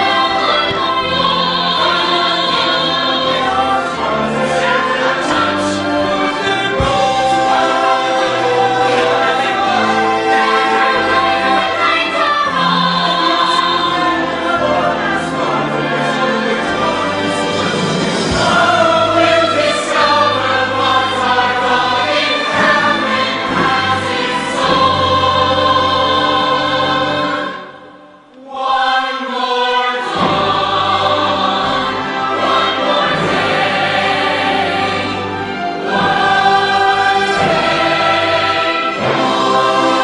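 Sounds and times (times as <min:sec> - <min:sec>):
choir singing with orchestra: 0:00.0 - 0:40.0.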